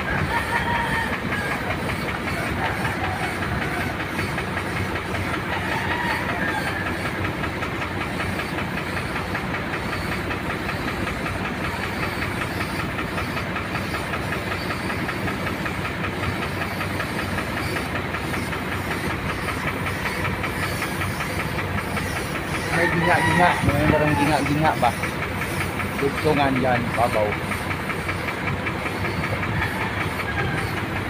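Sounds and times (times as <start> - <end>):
motor running: 0.0 - 31.0
paint spray gun hissing: 6.6 - 29.2.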